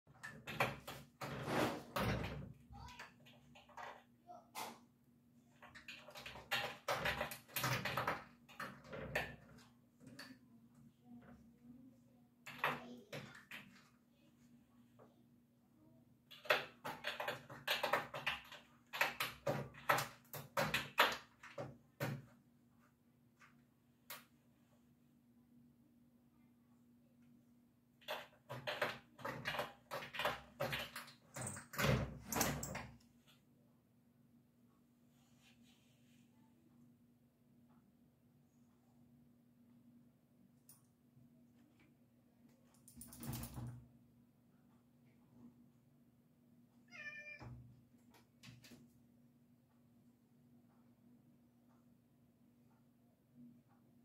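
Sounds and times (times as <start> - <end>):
sliding window rattling and scraping: 1.1 - 2.3.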